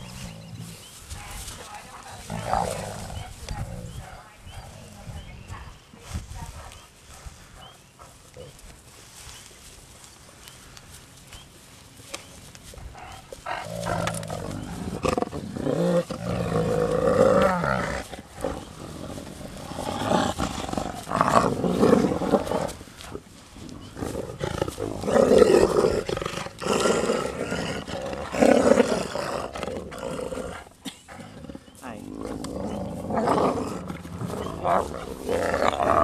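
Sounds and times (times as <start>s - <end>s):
wolves whining and growling: 12.9s - 36.0s.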